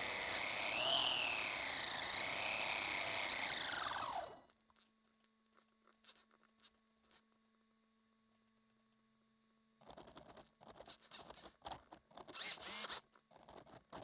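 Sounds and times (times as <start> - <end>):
electric motor whirring: 0.0 - 4.4, 12.4 - 13.0.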